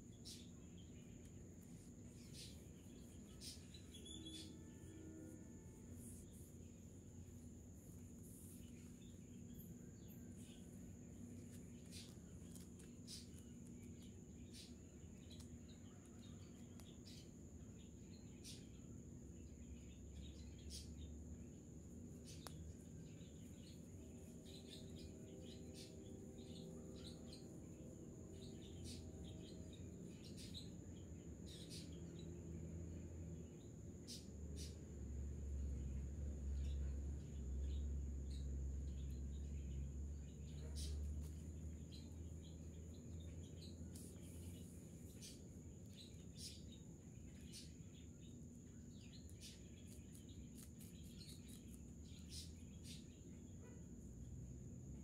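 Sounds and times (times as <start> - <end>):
faint high chirps: 0.0 - 32.4
steady high-pitched whine: 0.0 - 53.5.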